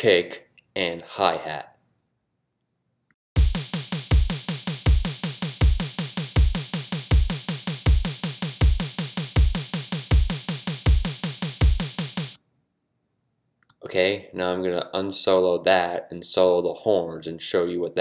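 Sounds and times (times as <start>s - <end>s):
electronic drum beat: 3.4s - 12.4s.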